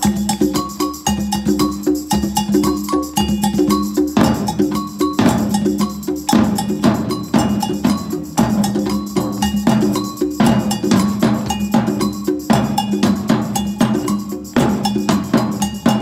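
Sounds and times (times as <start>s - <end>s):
percussion ensemble groove: 0.0s - 16.0s
ringing pitched notes: 2.7s - 16.0s.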